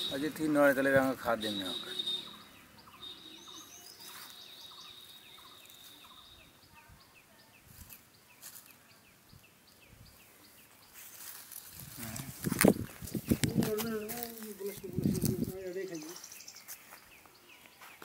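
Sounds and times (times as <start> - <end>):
birds chirping: 0.0 - 18.0.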